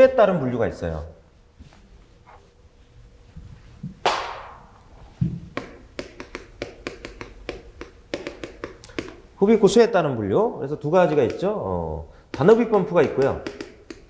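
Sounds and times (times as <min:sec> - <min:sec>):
chalk tapping on a blackboard: 0:05.5 - 0:09.3, 0:11.1 - 0:11.6, 0:12.3 - 0:14.0.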